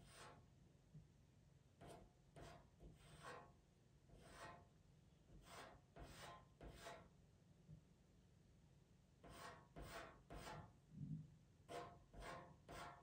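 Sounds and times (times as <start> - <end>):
pencil scratching on paper: 0.0 - 0.4, 1.8 - 4.7, 5.3 - 7.1, 9.2 - 10.7, 11.7 - 13.0.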